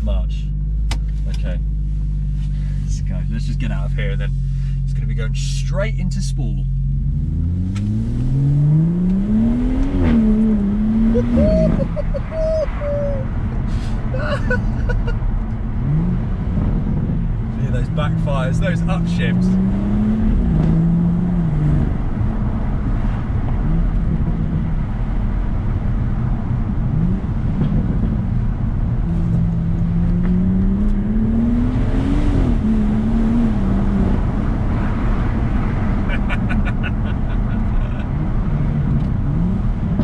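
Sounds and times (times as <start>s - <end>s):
car engine revving through gears: 6.8s - 12.0s, 15.7s - 25.1s, 26.8s - 40.0s.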